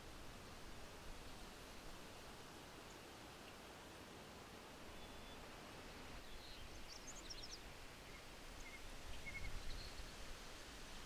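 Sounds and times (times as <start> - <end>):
faint hiss: 0.0 - 11.0
faint bird chirps: 4.9 - 5.4, 6.2 - 10.1.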